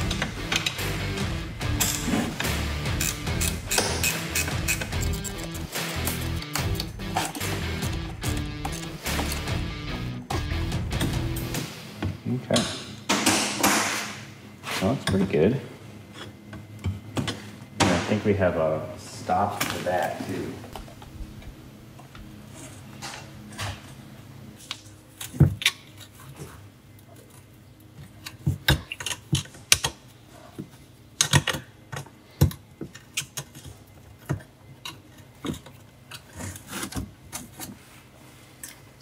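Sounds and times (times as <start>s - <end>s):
metal parts clicking and clinking: 1.8s - 2.1s, 2.9s - 9.5s.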